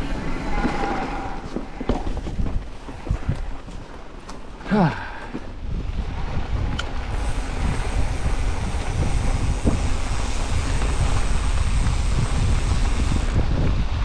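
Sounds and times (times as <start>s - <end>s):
wind on microphone: 0.0s - 4.1s, 5.3s - 14.0s
bike rattling: 0.0s - 4.6s, 5.8s - 14.0s
tyres rumbling over dirt: 6.1s - 14.0s.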